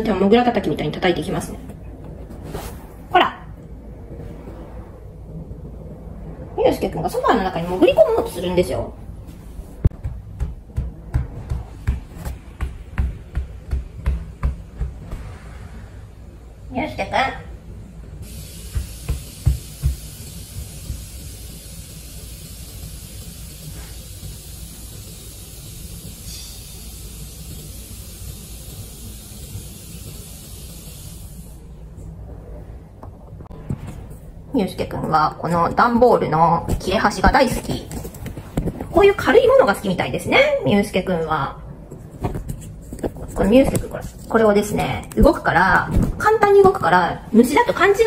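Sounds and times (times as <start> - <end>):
steady low hum: 0.0 - 48.0
low rumble: 1.4 - 18.5, 31.6 - 35.1
steady hiss: 12.2 - 32.2.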